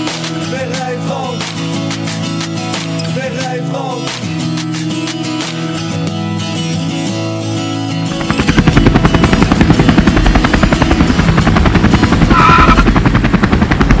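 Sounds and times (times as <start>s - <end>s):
guitar music: 0.0s - 13.6s
brief tone: 12.3s - 12.9s.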